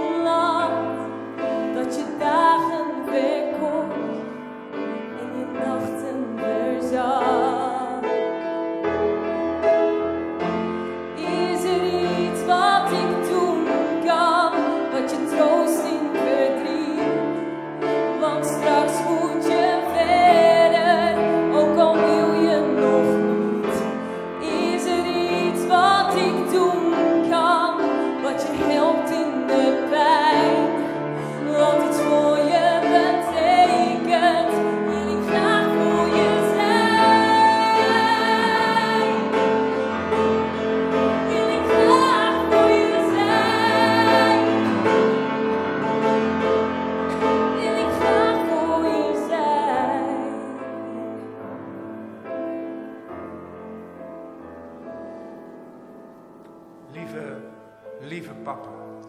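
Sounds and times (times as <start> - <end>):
grand piano accompaniment: 0.0 - 59.0
woman singing a slow ballad: 5.2 - 8.1, 18.2 - 39.3, 41.3 - 44.8, 47.6 - 51.4.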